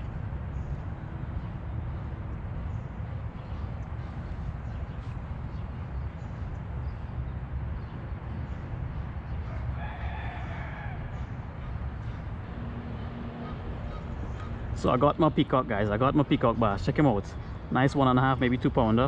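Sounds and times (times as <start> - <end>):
steady low rumble: 0.0 - 9.8
bird call: 13.4 - 14.6.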